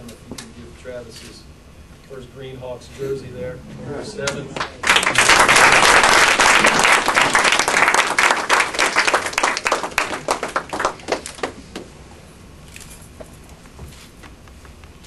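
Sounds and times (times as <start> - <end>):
audience applauding: 4.2 - 11.9.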